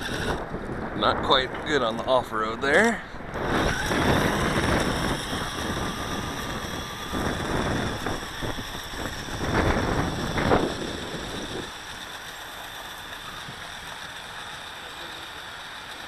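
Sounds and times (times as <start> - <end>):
toy electric motor running: 0.0 - 0.6, 3.4 - 16.0
wind buffeting microphone: 0.0 - 12.1.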